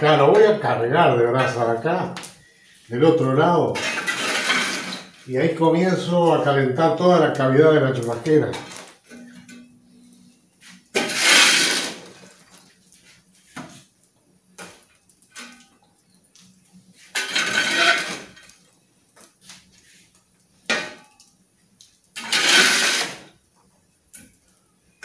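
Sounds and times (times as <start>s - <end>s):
metal shovel scraping embers on brick: 2.8s - 6.1s, 7.9s - 12.6s, 17.0s - 18.6s, 20.0s - 21.2s, 22.2s - 23.4s.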